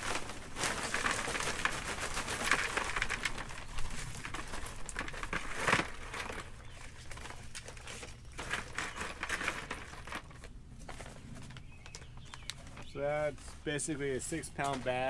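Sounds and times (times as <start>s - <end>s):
rocks rattling in plastic bucket: 0.0s - 11.1s.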